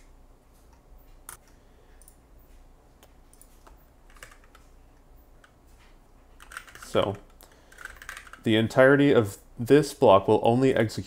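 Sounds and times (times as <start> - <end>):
faint keyboard keystrokes: 3.0 - 4.7.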